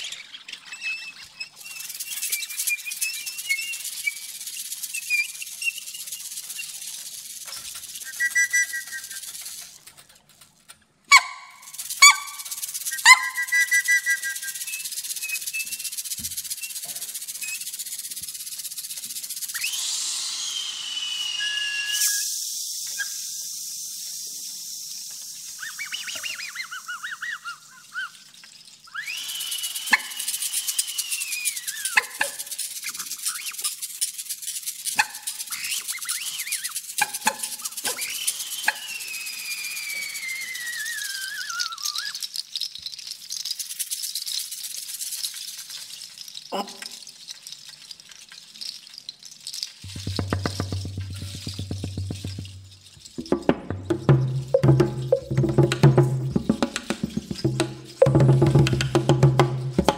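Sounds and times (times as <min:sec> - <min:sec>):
whistles imitating bird calls: 0:00.0 - 0:06.9, 0:07.8 - 0:09.6, 0:11.1 - 0:17.8, 0:19.5 - 0:23.4, 0:25.4 - 0:33.8, 0:35.0 - 0:42.4
faint high hiss: 0:00.0 - 0:59.9.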